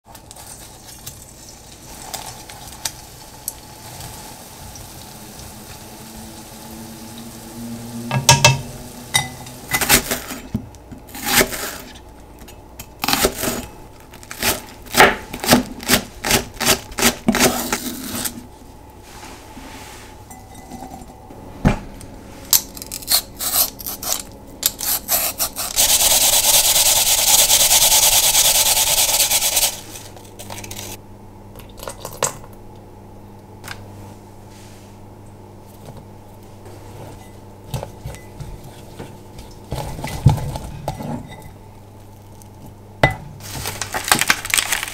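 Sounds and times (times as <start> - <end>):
grater rasping: 23.0 - 29.9.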